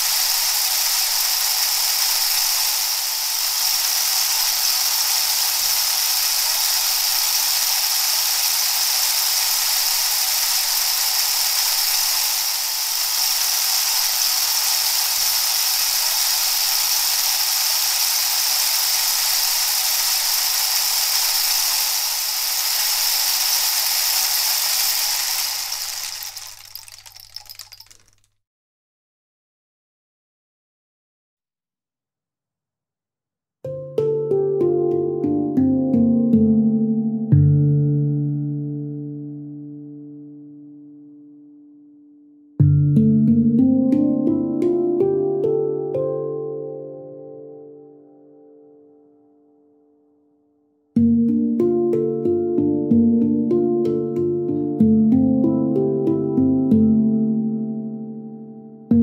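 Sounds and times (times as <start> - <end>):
steady rushing hiss: 0.0 - 28.0.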